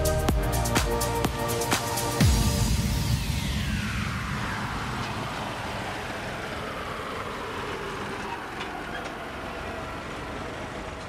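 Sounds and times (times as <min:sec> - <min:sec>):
electronic noisy falling sweep: 0:00.0 - 0:07.7.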